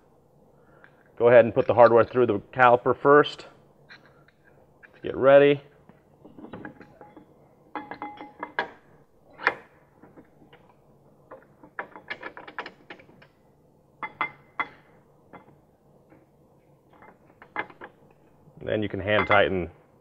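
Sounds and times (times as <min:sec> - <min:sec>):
metal clinks and taps: 0:06.4 - 0:08.8, 0:14.0 - 0:15.6.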